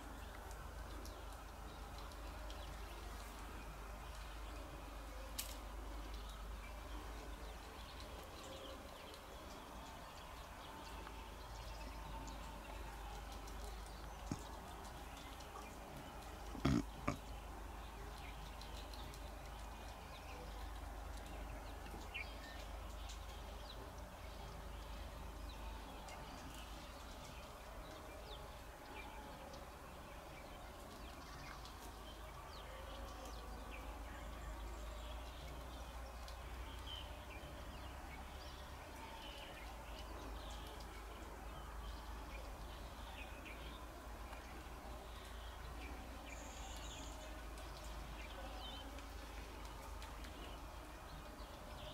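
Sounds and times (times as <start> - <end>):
small birds chirping: 0.0 - 27.5.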